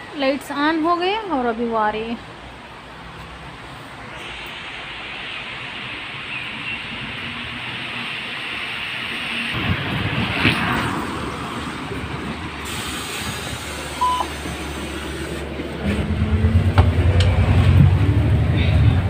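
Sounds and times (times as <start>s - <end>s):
street and tyre noise: 0.0s - 19.0s
bus engine running: 2.4s - 19.0s
ticket reader beep: 14.0s - 14.3s.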